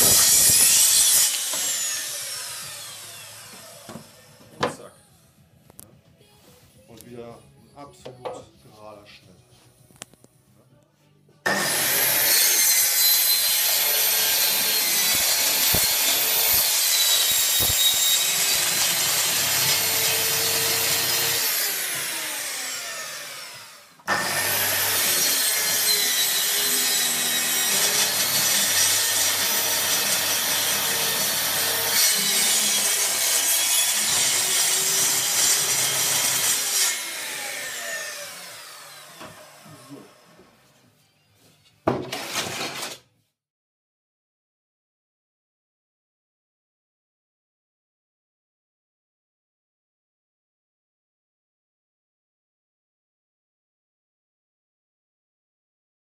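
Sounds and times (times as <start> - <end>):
circular saw cutting wood: 0.0 - 4.8, 11.5 - 40.3.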